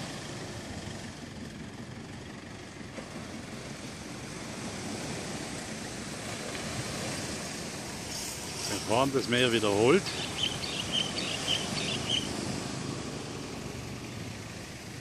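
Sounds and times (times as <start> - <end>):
small waves breaking: 0.0 - 15.0
wind rumbling on microphone: 3.2 - 15.0.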